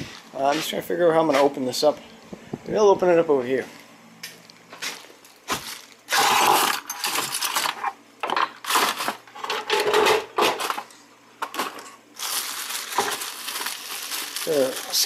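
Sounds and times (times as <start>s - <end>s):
plastic bag crinkling: 4.8s - 7.8s, 11.6s - 15.0s.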